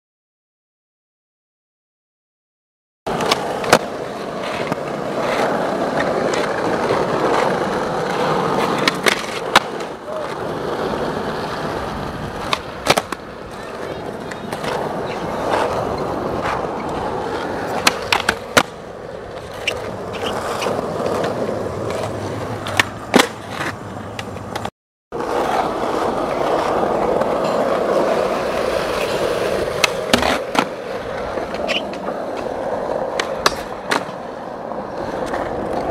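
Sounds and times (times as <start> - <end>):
skateboard tail pops and landings: 3.1 - 10.0, 12.4 - 13.3, 17.7 - 18.8, 19.4 - 24.7, 26.5 - 32.5, 33.1 - 34.2
skateboard wheels rolling on asphalt: 3.1 - 35.9.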